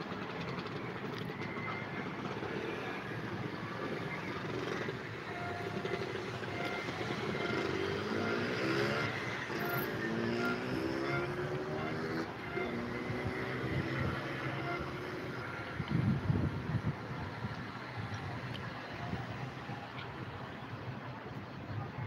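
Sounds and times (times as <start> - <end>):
engine accelerating: 0.0 - 17.6
traffic din: 0.0 - 22.0
car horns tooting: 3.6 - 15.8.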